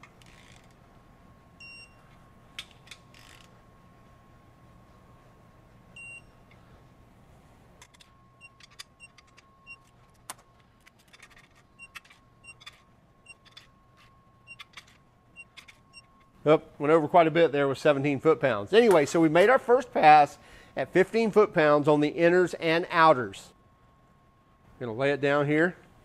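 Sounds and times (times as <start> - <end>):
wrench ratcheting: 0.0 - 0.8, 2.6 - 3.5
torque wrench beeping: 11.7 - 14.8.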